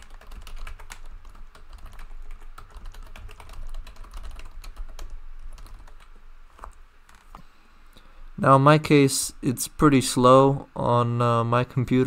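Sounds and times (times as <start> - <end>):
typing on computer keyboard: 0.0 - 7.4.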